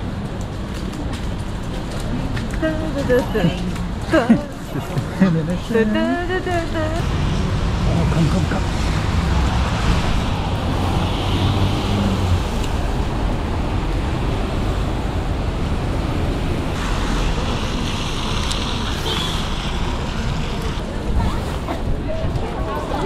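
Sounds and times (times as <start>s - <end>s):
traffic on wet road: 0.0s - 23.0s
wind rumbling on microphone: 6.9s - 23.0s.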